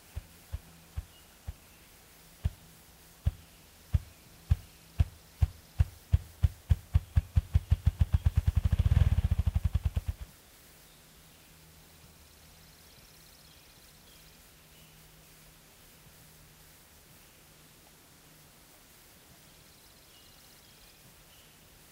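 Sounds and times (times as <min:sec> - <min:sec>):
grouse drumming wingbeat thumps: 0:00.0 - 0:01.7, 0:02.4 - 0:10.3.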